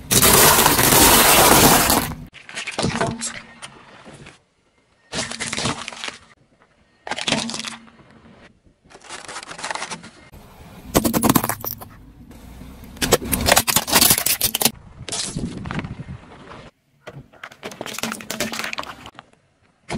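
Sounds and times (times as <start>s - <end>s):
tyre crushing plastic containers: 0.0s - 3.5s, 13.0s - 14.7s, 17.3s - 19.2s.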